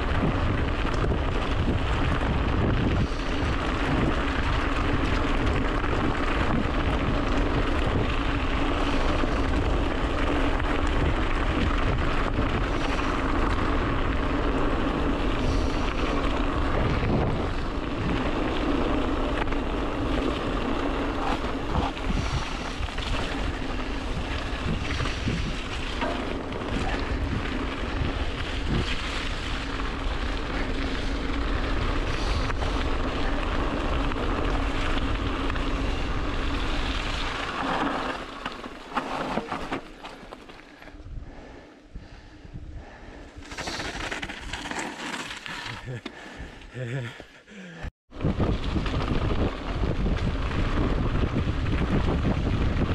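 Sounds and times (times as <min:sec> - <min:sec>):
wind rushing over microphone: 0:00.0 - 0:38.7, 0:40.9 - 0:44.6, 0:48.1 - 0:52.9
bike knocking and rattling: 0:00.0 - 0:41.0, 0:43.2 - 0:46.2
tyres crunching over gravel: 0:43.4 - 0:46.2.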